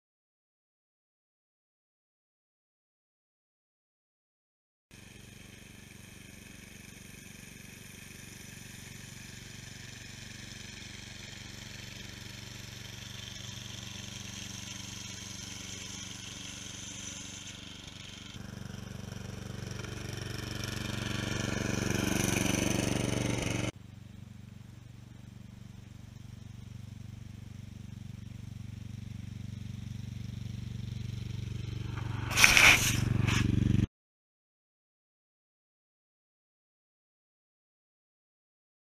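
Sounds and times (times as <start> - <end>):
riding mower engine running: 4.9 - 33.9.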